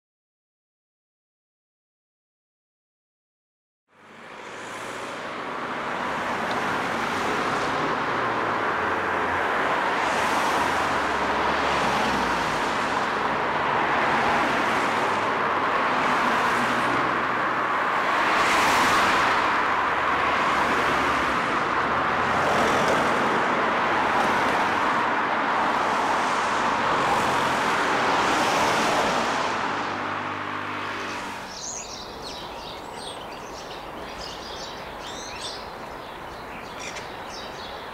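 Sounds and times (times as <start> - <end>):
cars passing in dense traffic: 3.9 - 37.9
birds chirping: 30.8 - 37.9.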